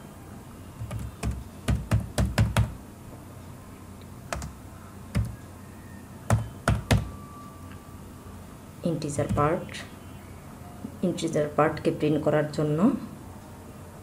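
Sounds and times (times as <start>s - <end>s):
typing on computer keyboard: 0.8s - 2.8s, 4.3s - 5.4s, 6.3s - 7.1s.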